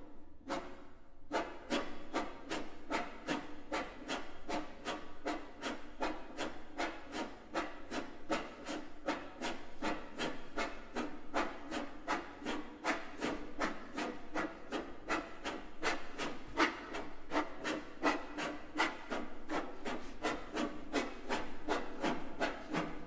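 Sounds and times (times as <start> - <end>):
hands rubbing violin bodies: 5.4 - 23.0.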